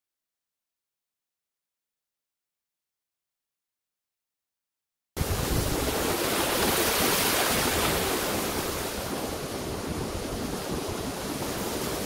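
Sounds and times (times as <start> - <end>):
wind buffeting microphone: 5.2 - 12.0.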